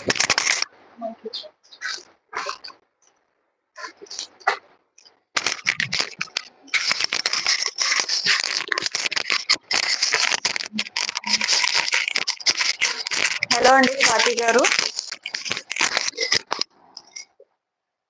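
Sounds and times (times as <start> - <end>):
fabric rustling and crinkling: 0.0 - 0.8, 3.8 - 17.3.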